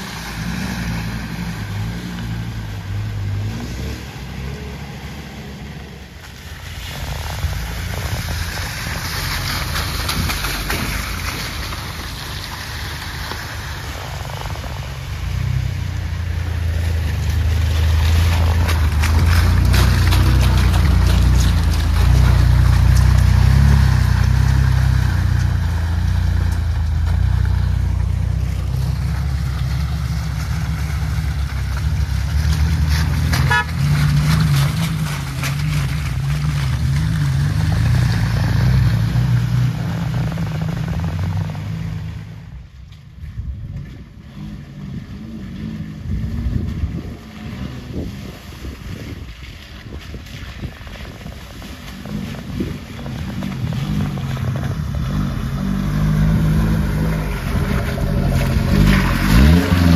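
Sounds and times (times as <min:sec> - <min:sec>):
engine churning through mud: 0:00.0 - 0:59.9
off-road engines under load: 0:00.0 - 0:59.9
horn toot: 0:33.4 - 0:34.0.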